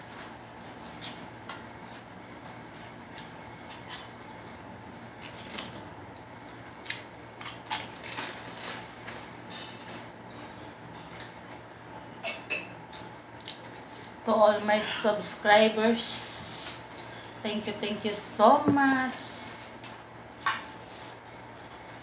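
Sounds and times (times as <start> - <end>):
low steady hum: 0.0 - 22.0
eating clicks and smacks: 12.9 - 14.2.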